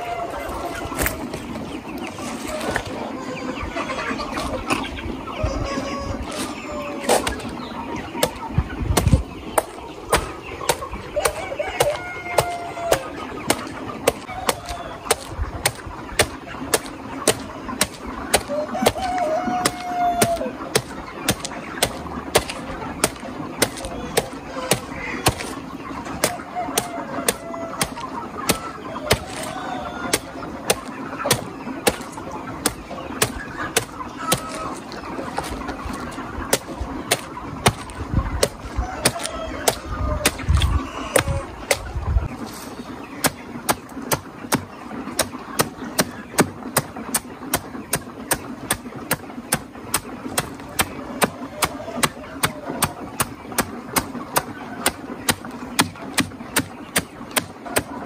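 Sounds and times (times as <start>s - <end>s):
distant poultry calling: 0.0s - 58.0s
knife chopping banana stem: 10.1s - 19.0s, 19.6s - 25.4s.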